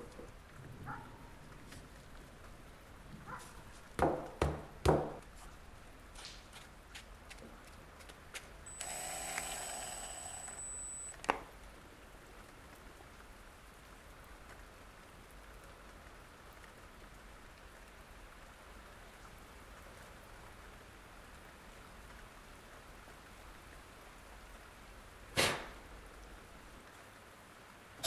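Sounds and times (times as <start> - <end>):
cordless drill whirring: 8.7 - 11.1.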